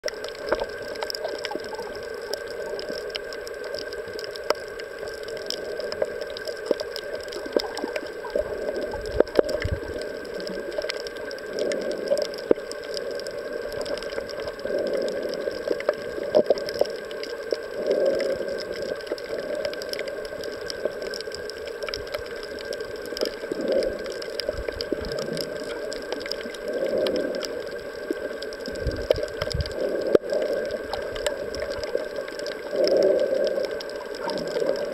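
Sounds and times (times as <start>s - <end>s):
faint steady hum: 0.0s - 34.9s
muffled underwater water hiss: 0.0s - 34.9s
sharp clicks and crackles: 0.0s - 34.9s
muffled water swooshing: 0.1s - 34.9s.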